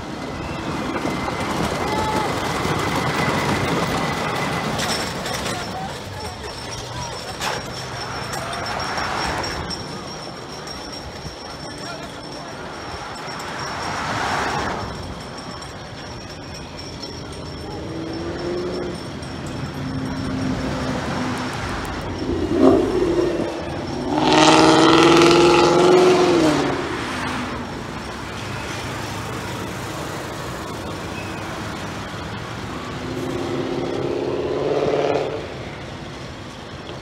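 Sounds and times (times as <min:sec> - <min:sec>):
road traffic passing: 0:00.0 - 0:37.0
vehicle passing loudly: 0:17.8 - 0:30.8, 0:31.8 - 0:35.9.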